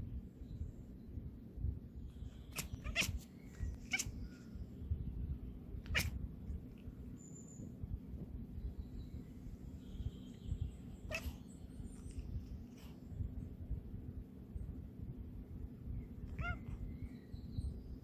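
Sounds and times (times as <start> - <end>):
kitten chirping: 2.2 - 4.5, 5.8 - 6.2, 10.4 - 12.4, 16.2 - 16.9.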